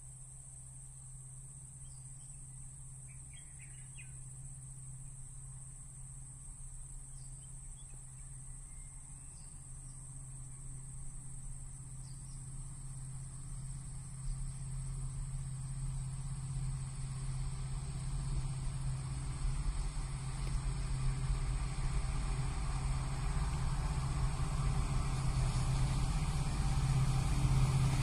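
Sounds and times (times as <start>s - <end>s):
insect buzz: 0.0s - 28.0s
diesel locomotive rumble: 1.2s - 28.0s
bird chirps: 3.1s - 4.2s.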